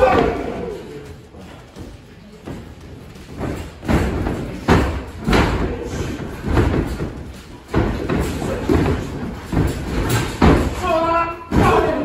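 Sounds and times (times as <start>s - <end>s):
bodies thudding on wrestling ring: 2.5s - 12.0s.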